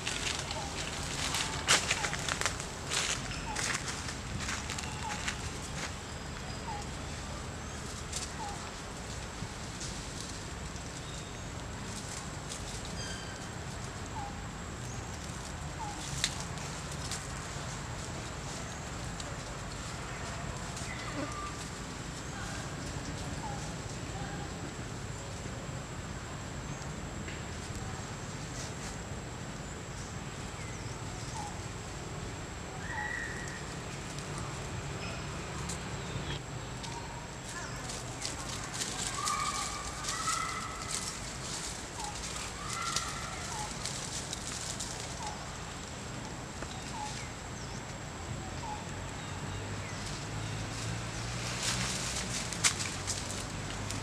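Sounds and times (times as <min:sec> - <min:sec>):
dry leaves crackling and rustling: 0:00.0 - 0:54.0
animal chirps and calls: 0:32.8 - 0:33.7.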